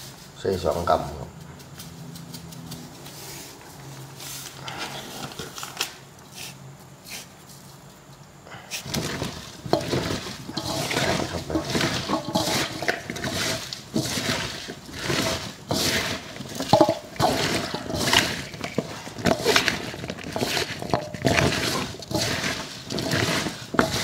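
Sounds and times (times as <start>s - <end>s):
wet crunching rustle of bamboo shoots: 8.6s - 24.0s.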